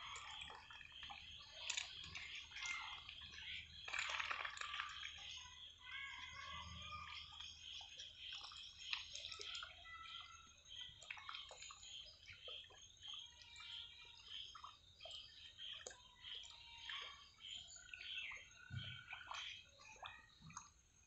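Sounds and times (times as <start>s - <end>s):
ducks dabbling in muddy water: 0.0s - 21.0s
faint steady chirping: 0.0s - 21.0s.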